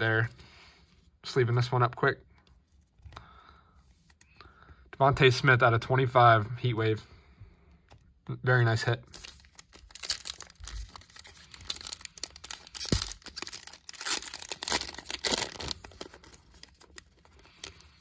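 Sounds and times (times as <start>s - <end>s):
foil wrapper crinkling and tearing: 9.1s - 18.0s.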